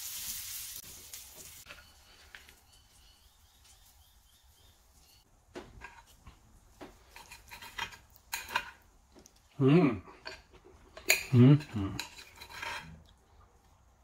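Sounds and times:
cutlery scraping on a plate: 5.8s - 6.2s, 7.0s - 8.8s, 10.2s - 13.0s
person vocal sound: 9.6s - 10.1s.

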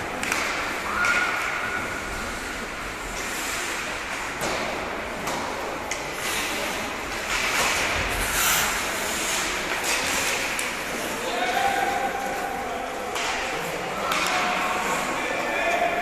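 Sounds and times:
faint voices: 0.0s - 16.0s
hockey sticks and puck clacking: 0.0s - 16.0s
steady hall noise: 0.0s - 16.0s
skates scraping on ice: 6.2s - 11.2s.

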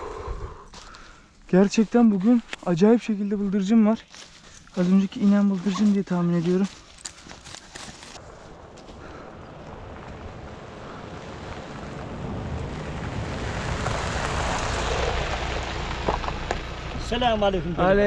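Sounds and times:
tyres on gravel: 0.7s - 18.0s
truck engine rumble: 8.2s - 18.0s.

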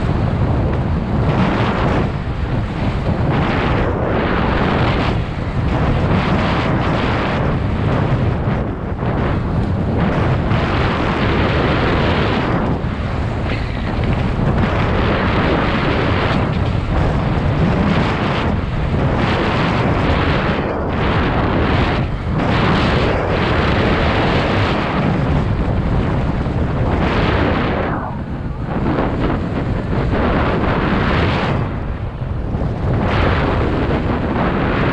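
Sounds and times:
tyres rumbling over dirt: 0.0s - 24.0s
wind buffeting microphone: 0.0s - 34.9s.

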